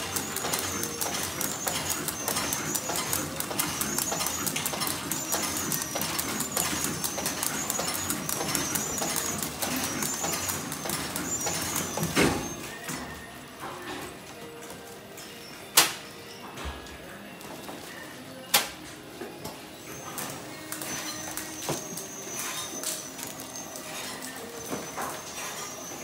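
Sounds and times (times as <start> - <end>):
rapid mechanical clicking: 0.0 - 12.6.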